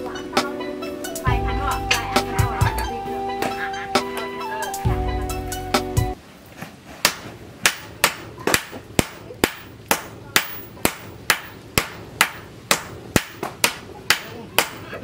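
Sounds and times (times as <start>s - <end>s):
hammers striking steel on anvil: 7.0s - 15.0s.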